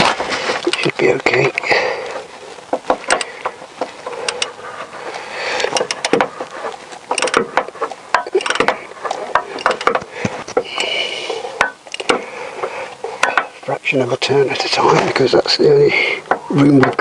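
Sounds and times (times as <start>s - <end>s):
socket ratchet clicking: 3.0s - 3.3s, 5.6s - 6.2s, 7.1s - 10.0s, 11.9s - 12.2s.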